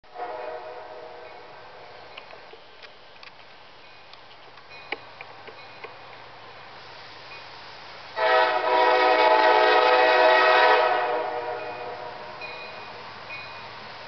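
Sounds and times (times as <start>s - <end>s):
freight train rumble: 0.0s - 14.0s
train horn blasts: 0.1s - 1.6s, 8.2s - 12.3s.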